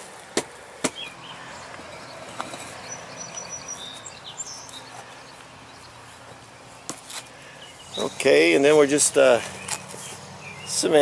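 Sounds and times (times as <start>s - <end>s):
faint bird chirps: 1.0s - 8.4s.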